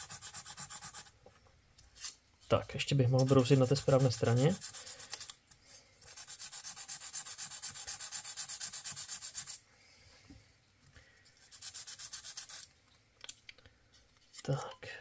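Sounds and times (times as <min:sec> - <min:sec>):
sandpaper rubbing on metal: 0:00.0 - 0:01.1, 0:03.1 - 0:05.2, 0:06.1 - 0:09.6, 0:11.4 - 0:12.7.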